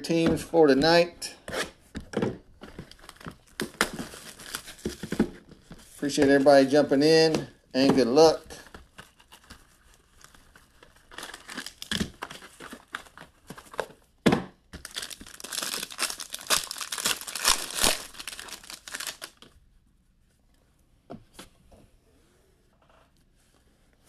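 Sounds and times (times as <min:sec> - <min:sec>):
plastic wrapping crinkling: 0:02.6 - 0:05.2, 0:08.4 - 0:13.9, 0:14.8 - 0:19.6.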